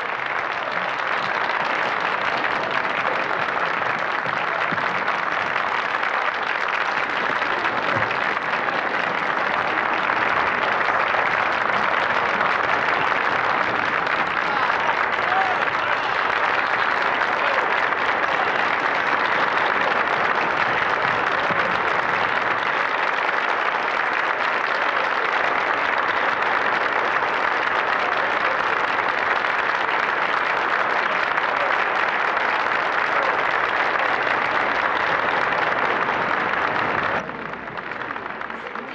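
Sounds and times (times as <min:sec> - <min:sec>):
audience applauding: 0:00.0 - 0:38.9.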